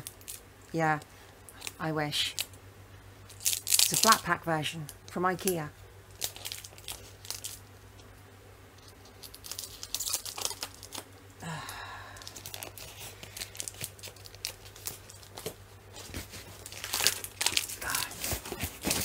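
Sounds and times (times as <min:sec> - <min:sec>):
plastic wrap crinkling: 0:00.0 - 0:02.6, 0:03.3 - 0:08.1, 0:08.8 - 0:11.1, 0:11.7 - 0:19.0
steady low hum: 0:00.0 - 0:19.0
cardboard package tearing: 0:03.3 - 0:04.2, 0:06.1 - 0:07.6, 0:09.1 - 0:11.1, 0:12.2 - 0:19.0
packing tape ripping: 0:03.3 - 0:04.2, 0:06.1 - 0:07.6, 0:08.8 - 0:11.1, 0:12.2 - 0:19.0.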